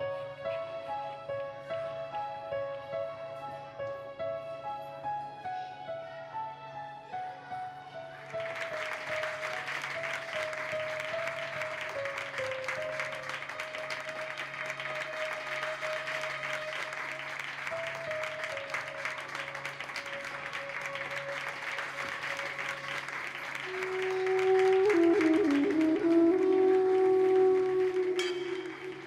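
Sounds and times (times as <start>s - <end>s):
slow background music: 0.0s - 29.0s
children clapping: 8.3s - 29.0s.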